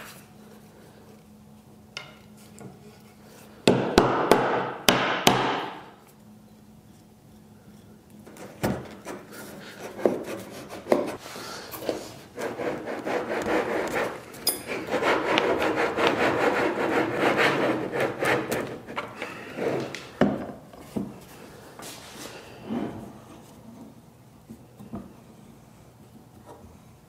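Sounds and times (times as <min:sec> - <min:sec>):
sharp wooden knocks: 0:03.7 - 0:05.8.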